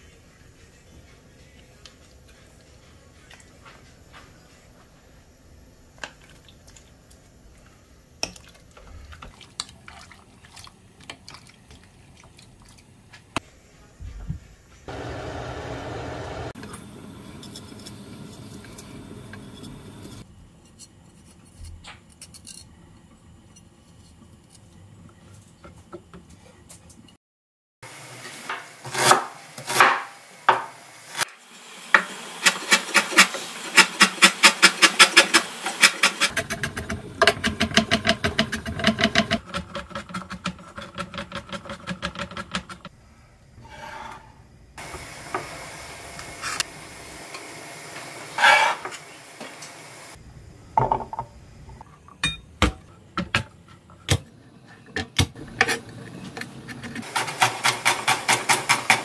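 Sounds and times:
knife slicing garlic: 57.1s - 59.0s.

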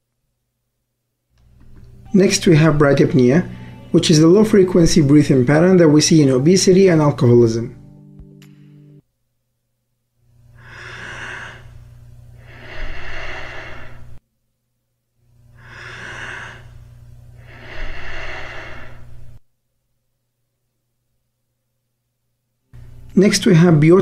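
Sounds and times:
slow deep human breathing: 10.3s - 14.2s, 15.2s - 19.4s.

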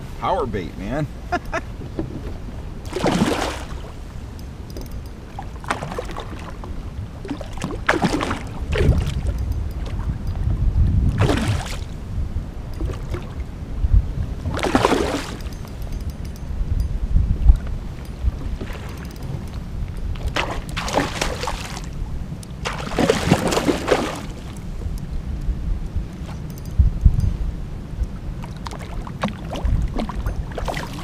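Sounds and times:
wind on microphone: 0.0s - 31.0s
water splashing: 2.8s - 4.0s, 5.3s - 10.1s, 11.1s - 12.0s, 14.4s - 15.6s, 20.2s - 22.0s, 22.6s - 24.6s, 28.4s - 31.0s.

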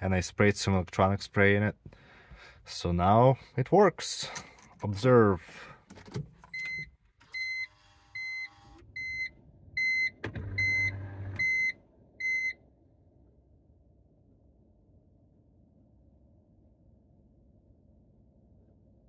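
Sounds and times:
dashboard warning chime beeping: 6.5s - 12.6s.

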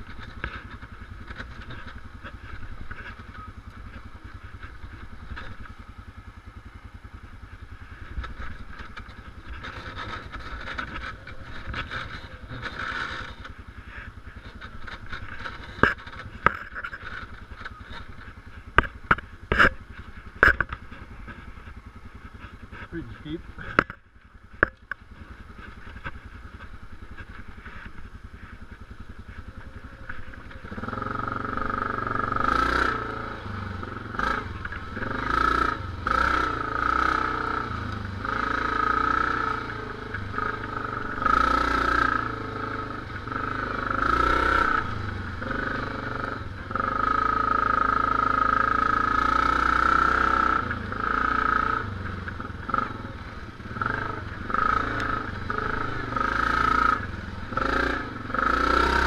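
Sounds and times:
quad bike engine: 0.0s - 59.0s.

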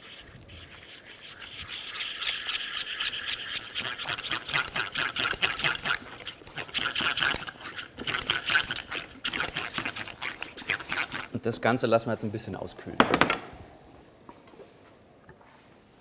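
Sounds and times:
cream stirred in a pot: 0.0s - 11.6s.

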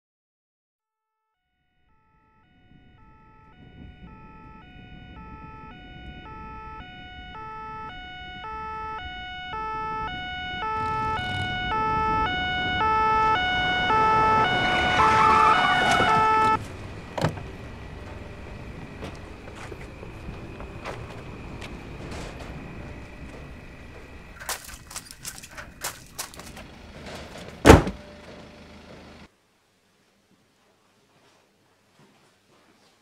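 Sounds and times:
two-tone police siren: 1.5s - 29.3s
engine and road rumble: 2.4s - 29.3s
sharp thud: 27.6s - 28.0s.

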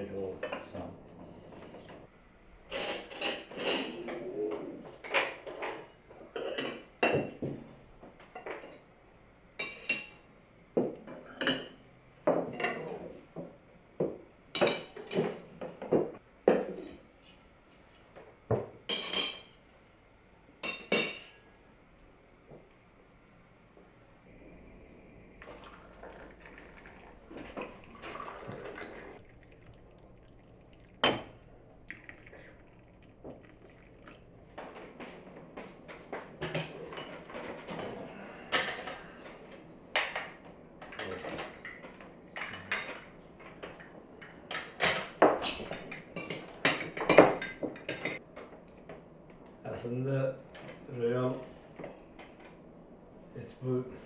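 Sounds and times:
tea glasses and spoons clinking: 25.5s - 34.3s.

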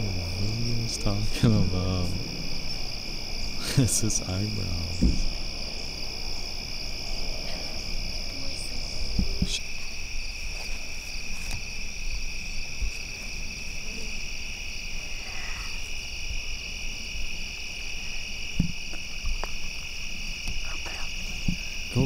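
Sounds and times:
faint low thumps: 0.0s - 6.0s
crickets and insects trilling: 0.0s - 22.0s.

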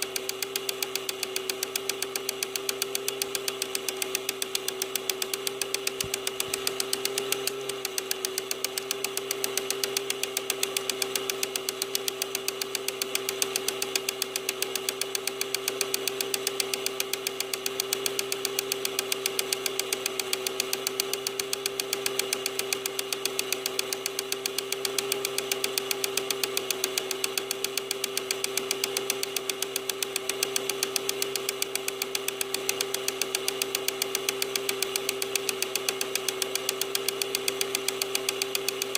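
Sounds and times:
fast even ticking: 0.0s - 38.9s
projector motor hum: 0.0s - 38.9s.

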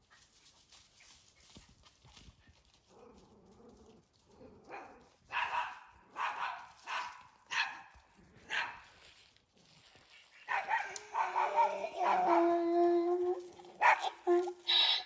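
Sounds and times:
dog barking: 4.7s - 8.9s, 10.5s - 12.5s, 13.8s - 15.0s.

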